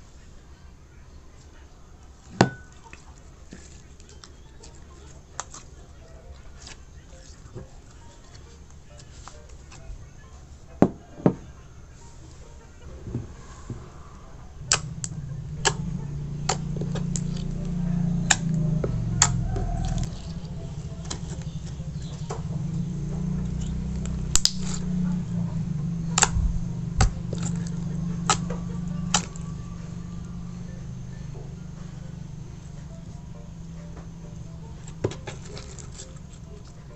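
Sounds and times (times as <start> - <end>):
low steady hum: 0.0 - 36.9
slime squashed by hand: 24.0 - 24.8.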